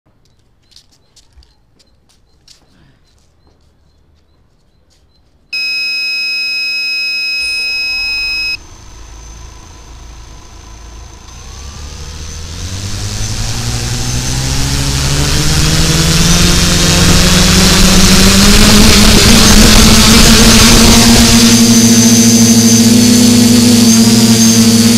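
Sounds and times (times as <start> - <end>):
drone propellers humming: 5.6 - 24.9
steady electronic tone: 5.6 - 24.9.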